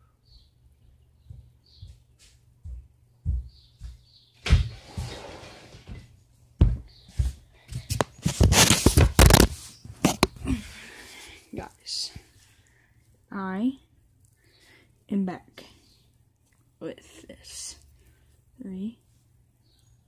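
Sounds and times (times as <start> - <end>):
rustling: 7.9 - 12.7.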